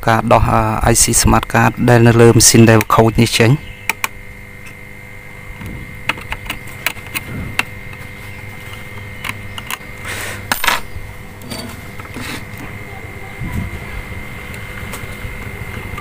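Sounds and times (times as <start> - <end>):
low hum: 0.0 - 16.0
small parts clicking and tapping: 6.0 - 9.9
faint high tone: 12.7 - 14.2.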